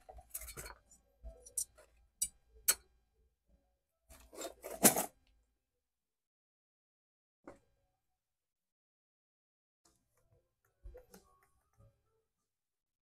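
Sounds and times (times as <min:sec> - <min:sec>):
small parts clicking and rubbing: 0:00.2 - 0:02.8.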